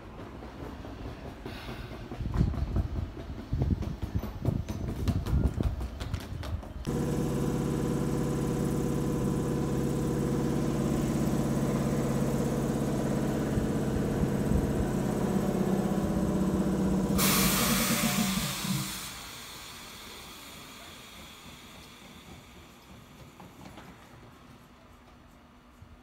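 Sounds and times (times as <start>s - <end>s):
train wheels knocking on rail joints: 0.0s - 6.8s, 21.4s - 24.4s
train equipment humming: 6.7s - 26.0s
compressed air hiss: 16.3s - 22.1s.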